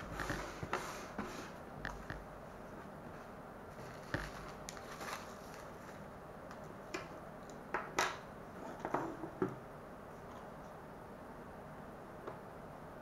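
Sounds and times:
plastic packaging crinkling: 3.7 - 6.1.

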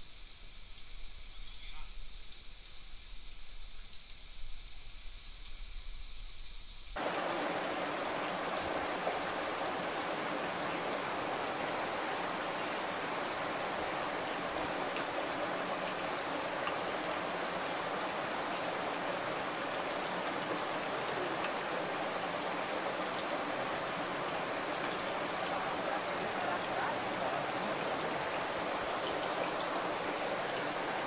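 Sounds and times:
running water rushing: 7.0 - 31.0.

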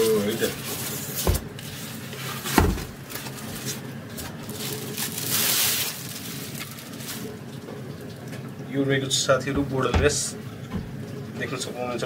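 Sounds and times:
plastic bag rustling: 0.0 - 7.7.

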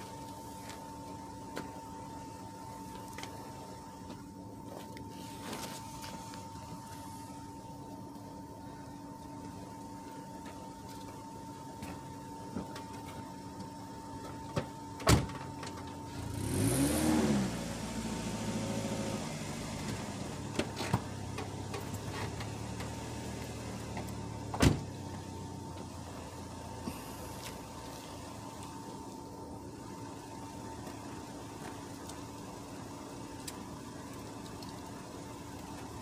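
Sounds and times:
car engine starting and idling: 0.0 - 36.0
car door shutting: 23.9 - 25.0.

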